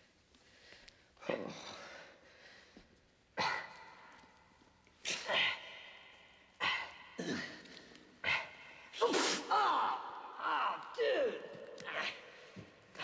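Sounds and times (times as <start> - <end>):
people grunting and gasping: 3.3 - 4.4, 5.0 - 13.0.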